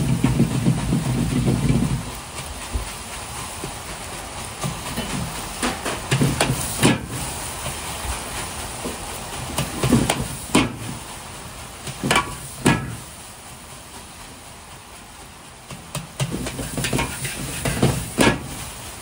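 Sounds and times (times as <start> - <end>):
steady sizzling: 0.0 - 19.0
metal ladle scraping a wok: 16.6 - 17.9.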